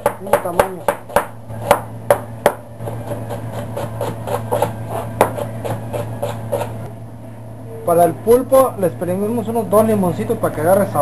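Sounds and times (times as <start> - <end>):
knife chopping on plastic board: 0.0 - 6.8.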